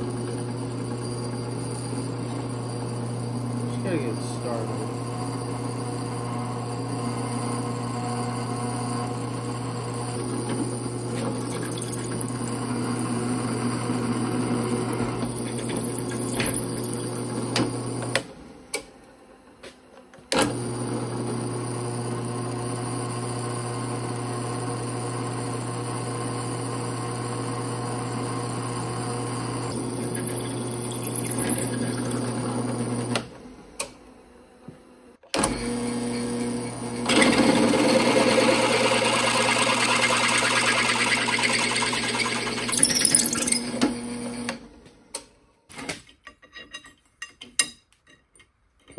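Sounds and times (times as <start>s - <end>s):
drill press boring through steel: 0.0s - 18.2s, 29.6s - 33.2s, 37.0s - 44.6s.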